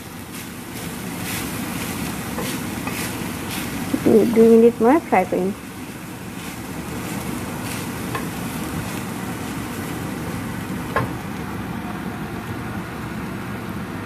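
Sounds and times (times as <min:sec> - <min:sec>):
spatula stirring and scraping: 0:00.0 - 0:10.4
food frying in a pan: 0:00.0 - 0:14.0.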